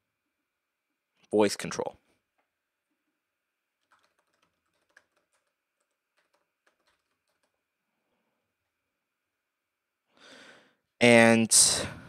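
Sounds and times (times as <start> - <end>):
typing on computer keyboard: 3.8 - 7.6.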